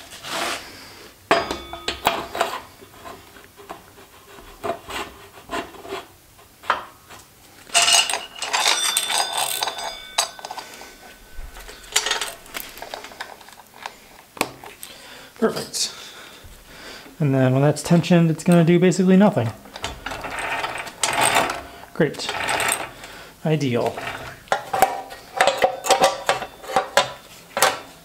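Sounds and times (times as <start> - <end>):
metal chain rattling and clinking: 7.7 - 13.9, 19.6 - 23.0, 23.9 - 27.2
metal clicks and knocks: 19.6 - 22.9, 23.8 - 27.9.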